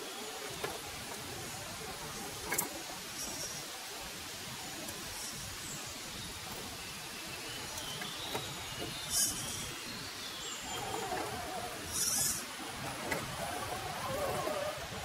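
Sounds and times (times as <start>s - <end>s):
steady outdoor hiss: 0.0s - 15.0s
electric motor and gears whining: 10.6s - 15.0s.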